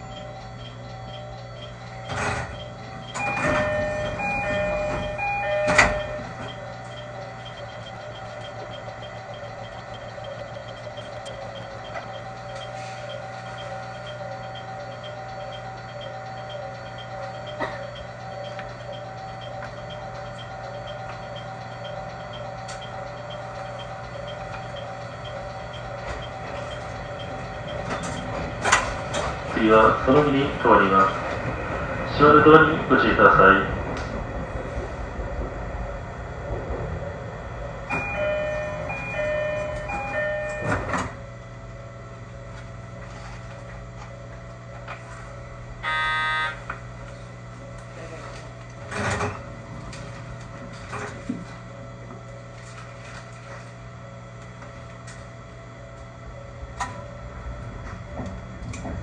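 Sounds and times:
faint even ticking: 0:00.0 - 0:29.2
two-tone door chime: 0:00.0 - 0:31.4, 0:37.8 - 0:41.4, 0:42.4 - 0:47.2
railcar humming: 0:00.0 - 0:59.0
sliding doors: 0:01.6 - 0:14.2, 0:22.6 - 0:41.3, 0:47.2 - 0:51.7, 0:56.7 - 0:59.0.

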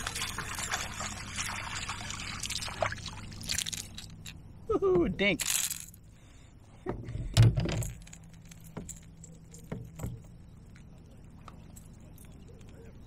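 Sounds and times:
metal fishing hooks clinking: 0:05.4 - 0:06.0.

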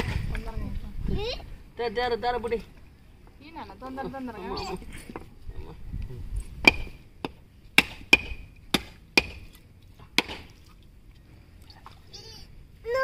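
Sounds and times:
coconut knocking on stone: 0:06.6 - 0:09.4, 0:10.2 - 0:10.5.

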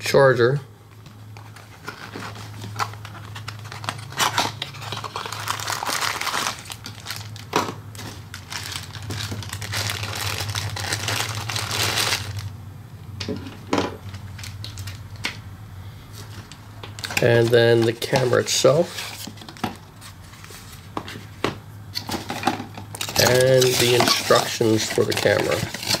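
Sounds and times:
plastic bag crinkling: 0:01.8 - 0:12.5, 0:22.9 - 0:26.0.

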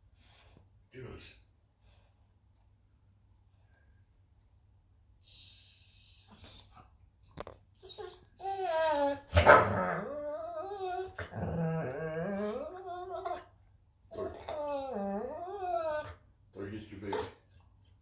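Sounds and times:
dog whining and grumbling: 0:05.2 - 0:16.3.

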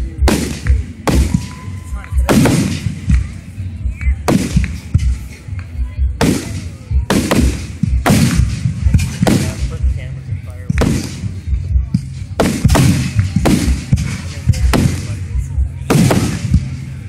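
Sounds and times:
firework shells booming: 0:00.2 - 0:03.4, 0:06.2 - 0:10.0, 0:10.7 - 0:15.2, 0:15.8 - 0:17.0
smaller firework cracks: 0:10.7 - 0:11.3, 0:15.9 - 0:16.8.

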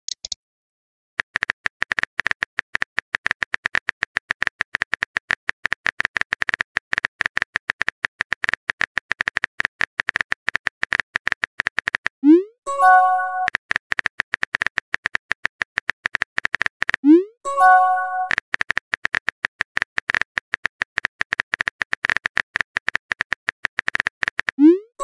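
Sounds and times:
phone keyboard clicks: 0:00.1 - 0:00.4.

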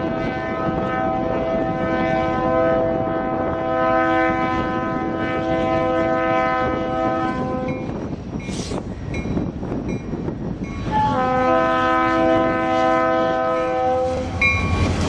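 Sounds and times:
locomotive air horn chord: 0:00.0 - 0:07.8, 0:10.9 - 0:14.3.

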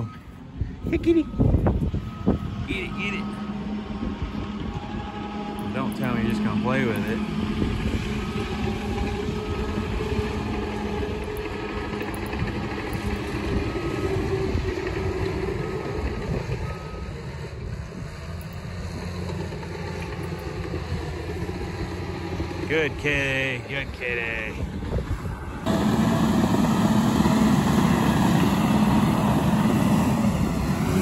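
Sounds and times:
back-up alarm beeping: 0:00.0 - 0:03.8, 0:08.1 - 0:17.4
bulldozer diesel engine running: 0:00.0 - 0:31.0.

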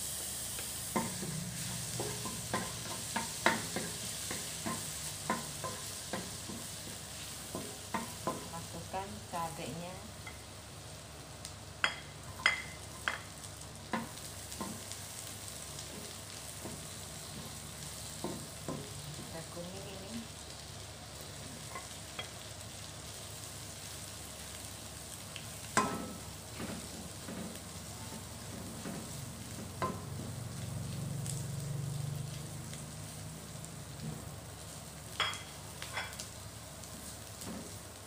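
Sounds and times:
garlic sizzling in oil: 0:00.0 - 0:38.0
spatula scraping and knocking pan: 0:01.0 - 0:08.5.

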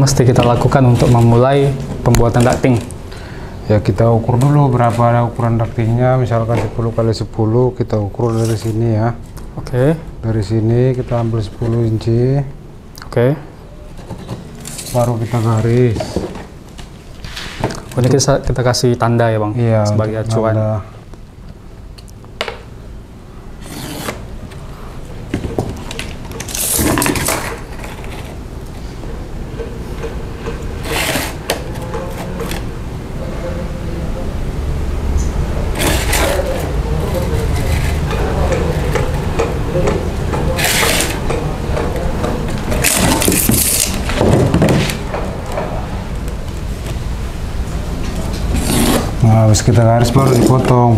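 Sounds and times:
tape measure blade pulled out: 0:23.6 - 0:24.2, 0:30.8 - 0:31.6, 0:35.8 - 0:36.6, 0:40.6 - 0:41.2
hand tools scraping on panel: 0:23.6 - 0:24.6, 0:30.0 - 0:32.7, 0:35.7 - 0:45.0, 0:48.4 - 0:49.2
tools scraping on foil: 0:26.4 - 0:28.4, 0:30.8 - 0:32.7, 0:35.8 - 0:38.4, 0:40.5 - 0:41.3, 0:42.7 - 0:44.1
dull scrape of metal straightedge: 0:30.8 - 0:32.6, 0:35.8 - 0:36.6.

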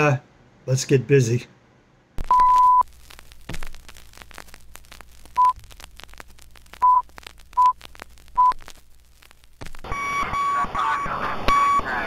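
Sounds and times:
low hum: 0:02.2 - 0:10.0
film crackle pops and clicks: 0:02.2 - 0:10.3
short beeps: 0:02.3 - 0:02.8, 0:09.9 - 0:12.0.

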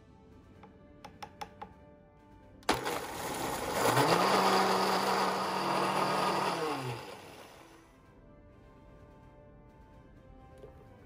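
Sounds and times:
blender motor running: 0:02.7 - 0:07.8.

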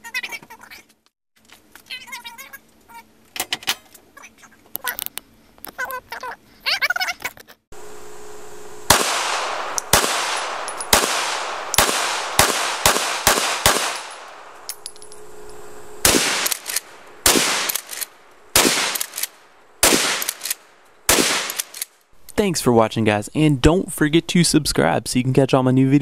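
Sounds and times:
gunshots: 0:08.9 - 0:14.7, 0:16.0 - 0:21.9.

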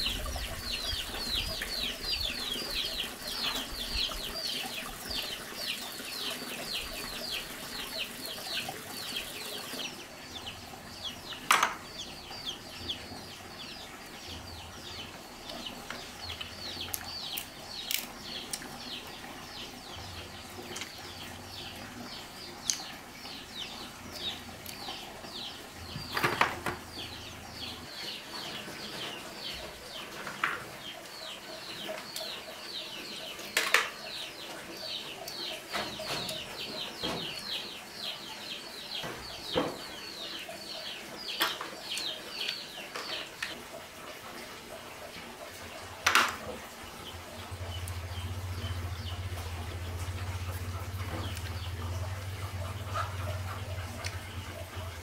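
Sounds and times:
birds cheeping rapidly: 0:00.0 - 0:43.6.

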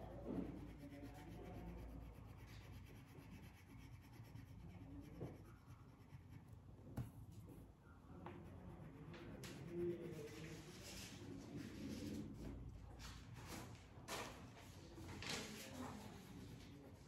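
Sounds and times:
crayon scratching on paper: 0:00.0 - 0:06.6, 0:08.4 - 0:11.2.

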